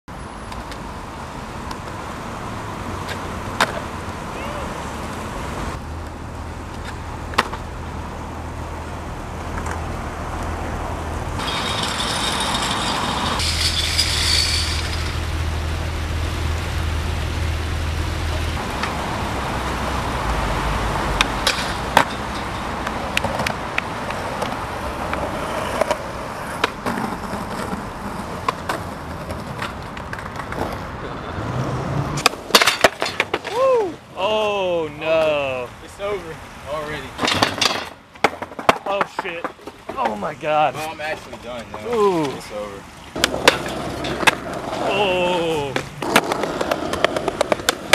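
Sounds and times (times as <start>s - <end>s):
city traffic noise: 0.0s - 47.9s
skateboard wheels rolling on concrete: 0.1s - 47.9s
skateboard clacks: 3.1s - 4.0s, 6.0s - 7.7s, 21.2s - 30.9s, 32.2s - 33.6s, 37.2s - 40.2s, 43.2s - 47.9s.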